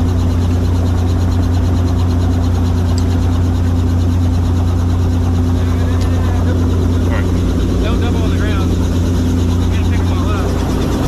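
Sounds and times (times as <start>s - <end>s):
helicopter rotor drone: 0.0s - 11.0s.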